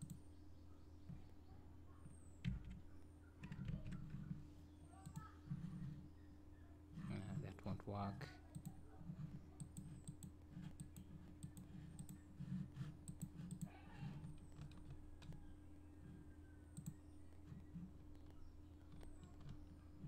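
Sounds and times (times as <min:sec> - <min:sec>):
computer mouse clicks: 0:00.0 - 0:00.2, 0:02.1 - 0:02.8, 0:03.4 - 0:04.4, 0:05.0 - 0:06.0, 0:08.5 - 0:20.0
faint low hum: 0:00.0 - 0:20.0.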